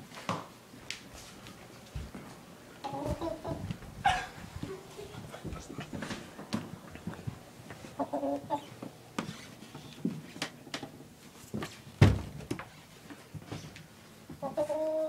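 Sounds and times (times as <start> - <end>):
rooster clucking: 2.8 - 6.0, 7.9 - 8.8
loud thump: 12.0 - 12.3.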